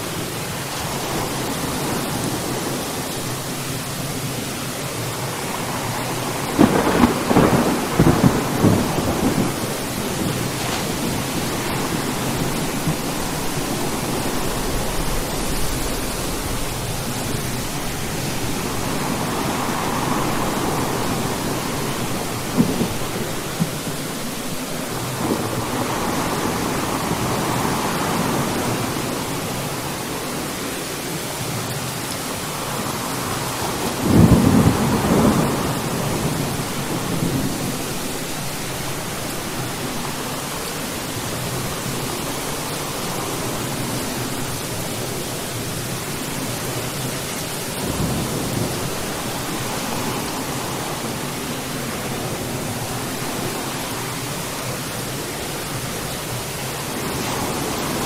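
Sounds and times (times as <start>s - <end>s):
steady rain: 0.0s - 58.0s
thunder rumbling and cracking: 5.2s - 30.1s, 32.4s - 53.9s.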